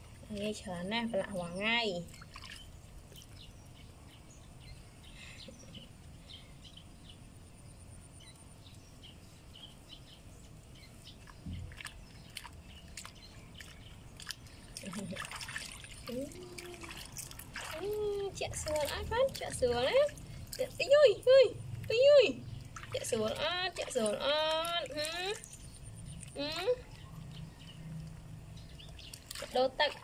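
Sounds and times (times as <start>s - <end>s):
water splashing in a basin: 0.0s - 3.5s, 11.1s - 30.0s
low background hiss: 0.0s - 11.2s.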